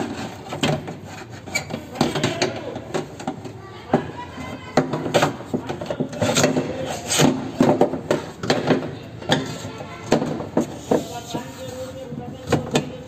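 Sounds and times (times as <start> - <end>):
metal clunks and scrapes: 0.0 - 3.6, 4.5 - 11.8.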